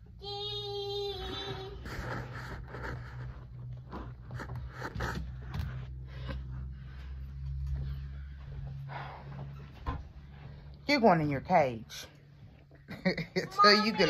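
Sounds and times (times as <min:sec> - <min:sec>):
low steady hum: 0:00.0 - 0:14.0
curtain fabric rustling and scraping: 0:01.3 - 0:06.0.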